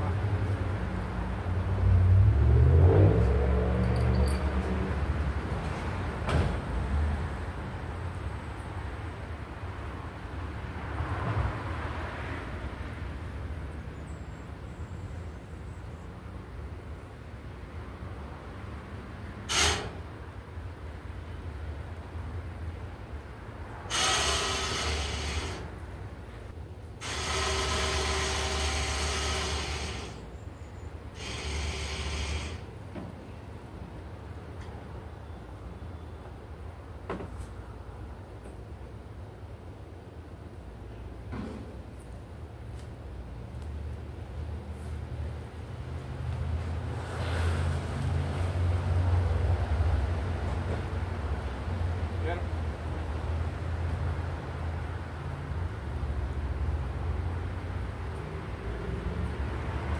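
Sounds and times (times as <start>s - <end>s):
electric winch motor whirring: 23.9s - 25.7s, 27.0s - 30.3s, 31.1s - 32.7s.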